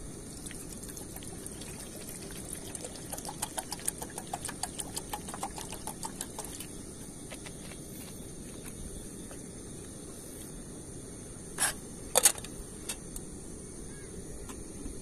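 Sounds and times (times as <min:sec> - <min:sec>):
water pouring into metal kettle: 0:00.2 - 0:06.8.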